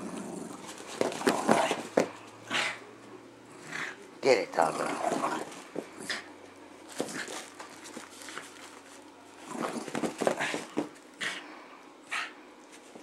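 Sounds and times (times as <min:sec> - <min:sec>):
dog playing with plush toy: 0:00.0 - 0:02.8, 0:04.6 - 0:11.4.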